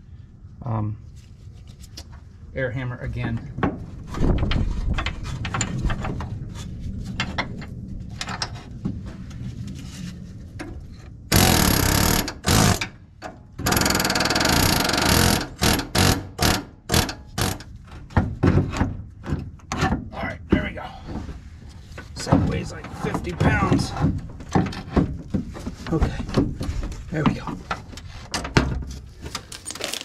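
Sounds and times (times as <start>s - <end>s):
pneumatic air hammer hammering: 11.3s - 13.0s, 13.6s - 17.7s
light knocks and rattles: 17.3s - 30.0s.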